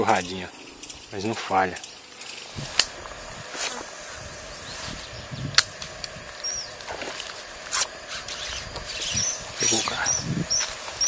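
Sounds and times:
outdoor background noise: 0:00.0 - 0:11.0
high bird chirp: 0:06.4 - 0:06.8, 0:08.2 - 0:11.0.

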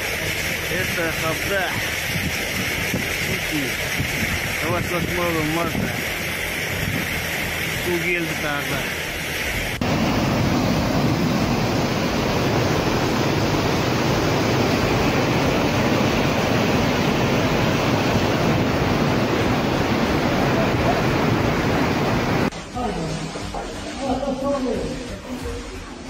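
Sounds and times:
floodwater rushing over bank: 0:00.0 - 0:22.5.

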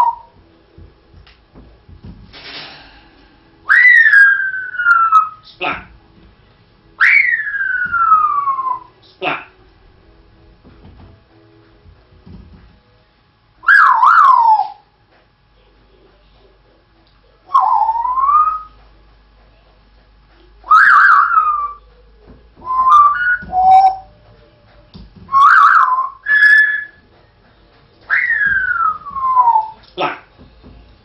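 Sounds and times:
parrot whistling: 0:00.0 - 0:00.4, 0:03.6 - 0:05.9, 0:07.0 - 0:09.5, 0:13.6 - 0:14.9, 0:17.5 - 0:18.8, 0:20.6 - 0:21.8, 0:22.6 - 0:24.2, 0:25.3 - 0:27.0, 0:28.1 - 0:30.3.

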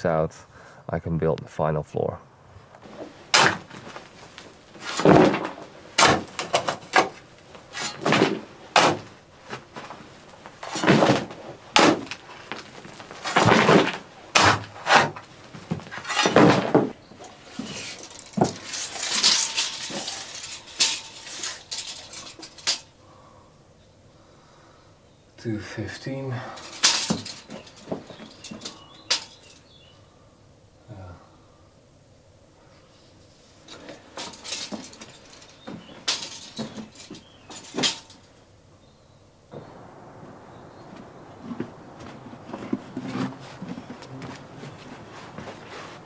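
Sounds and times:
shovel scraping soil and stones: 0:02.9 - 0:10.0, 0:10.6 - 0:22.9, 0:26.5 - 0:29.6, 0:33.7 - 0:38.2, 0:42.5 - 0:46.0.

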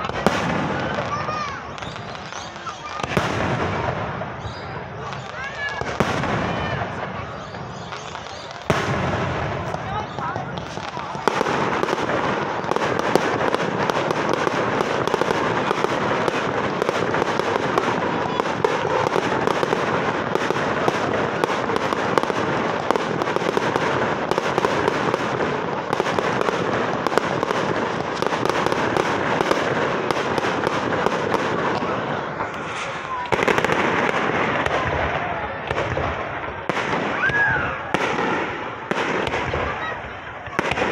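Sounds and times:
fireworks crackling: 0:00.0 - 0:40.9
fireworks shells bursting: 0:07.4 - 0:34.7.

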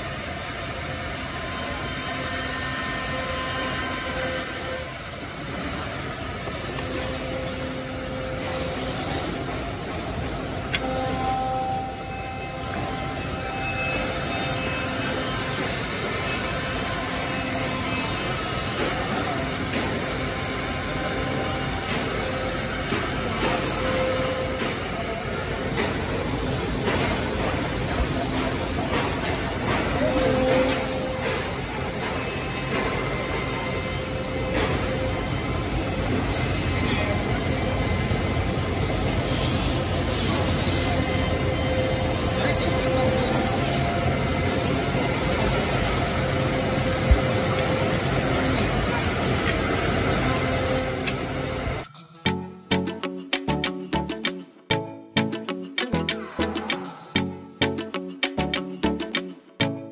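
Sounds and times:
machine running: 0:00.0 - 0:59.9
sharp clicks: 0:55.2 - 0:56.9.

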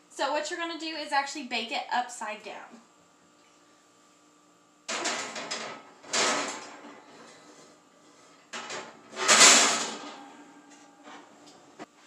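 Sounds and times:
metal oven rack clatter and scraping: 0:04.9 - 0:11.5.

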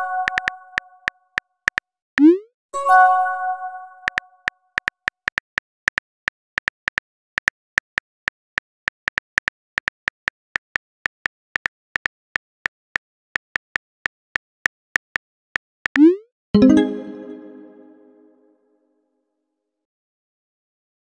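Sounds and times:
phone keyboard key clicks: 0:00.2 - 0:00.9.

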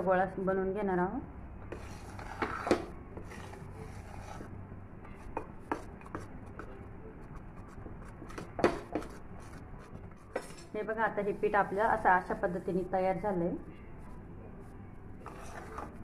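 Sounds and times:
spatula scraping dough in pan: 0:01.6 - 0:06.4, 0:15.2 - 0:16.0.

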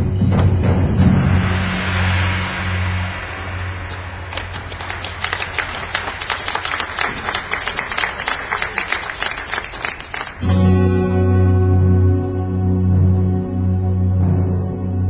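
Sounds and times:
loud sustained low chord: 0:00.0 - 0:05.7, 0:10.4 - 0:15.0
low held tone: 0:00.0 - 0:06.3
drumline percussion: 0:00.0 - 0:10.4.

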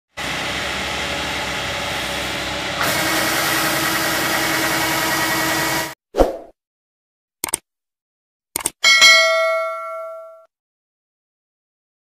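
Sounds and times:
auger discharging grain: 0:00.1 - 0:06.0
combine harvester diesel engine: 0:00.1 - 0:06.0.

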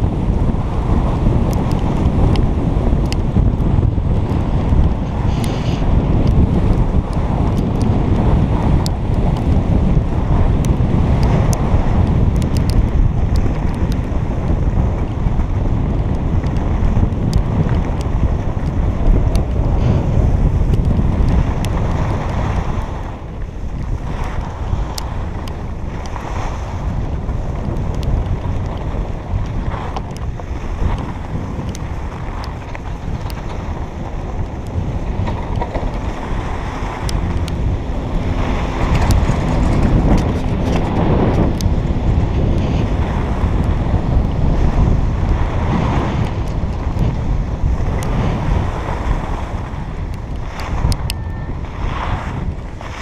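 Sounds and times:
wind buffeting microphone: 0:00.0 - 0:53.0
skis scraping on packed snow: 0:17.5 - 0:41.5, 0:50.4 - 0:50.9, 0:51.6 - 0:53.0.

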